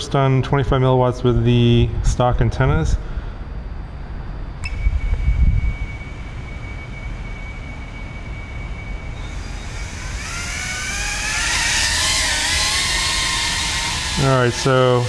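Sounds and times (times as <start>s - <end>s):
quadcopter propellers whining: 5.7s - 15.0s.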